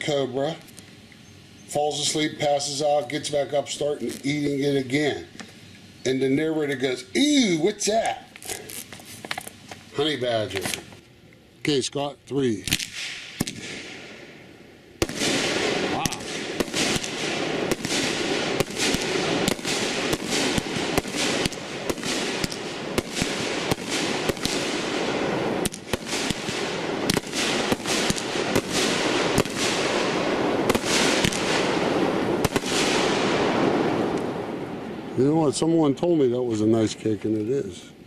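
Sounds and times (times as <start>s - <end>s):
hiss of burning fireworks: 0.0s - 11.0s, 12.4s - 37.2s
fireworks cake bursting: 7.2s - 10.9s, 15.0s - 34.5s.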